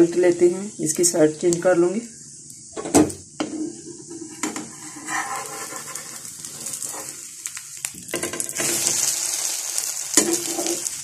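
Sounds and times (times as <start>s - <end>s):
omelette sizzling in oil: 0.0s - 11.0s
spatula scraping and tapping pan: 3.4s - 7.2s, 10.2s - 10.9s.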